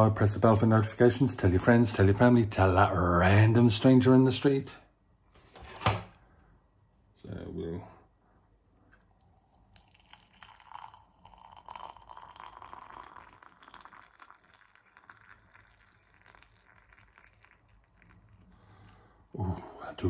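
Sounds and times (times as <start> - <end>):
water pouring into mug: 8.9 - 19.0.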